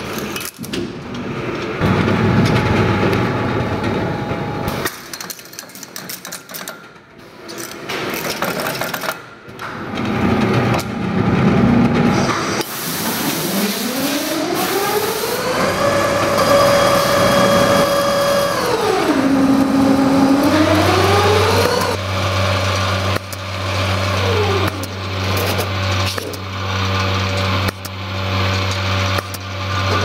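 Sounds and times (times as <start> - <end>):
low machine hum: 1.0 - 4.9, 14.9 - 30.0
winding machine whine: 10.2 - 30.0.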